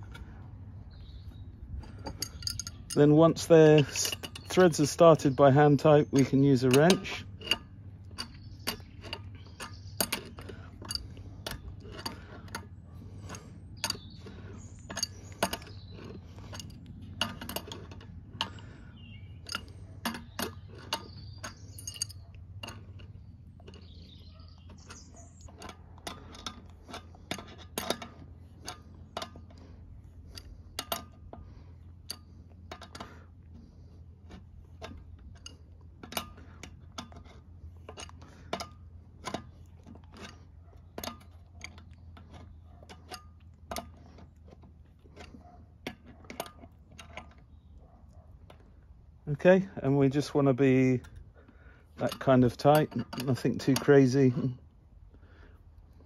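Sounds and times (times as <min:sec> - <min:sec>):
wrench clicking on metal nuts: 0:01.8 - 0:18.7.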